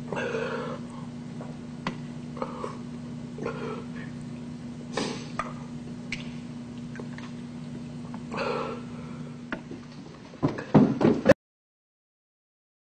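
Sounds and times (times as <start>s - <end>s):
low electrical hum: 0.0s - 11.4s
man eating noisily: 2.2s - 9.5s.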